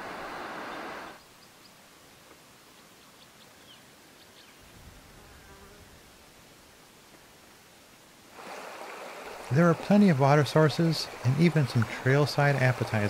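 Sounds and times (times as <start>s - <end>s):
small birds chirping: 2.7s - 4.7s.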